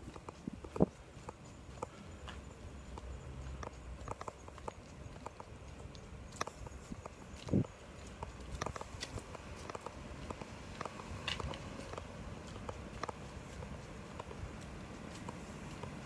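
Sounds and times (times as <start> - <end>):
footsteps on wet asphalt: 0.0 - 16.0
low outdoor rumble: 0.0 - 16.0.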